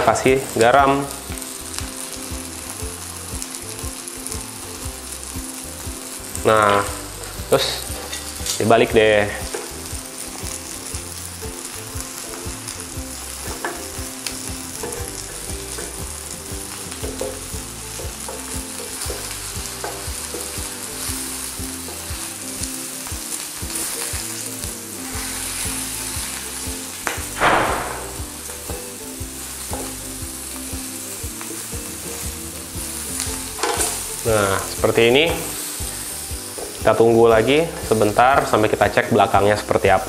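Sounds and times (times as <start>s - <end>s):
vegetables sizzling in a pan: 0.0s - 40.0s.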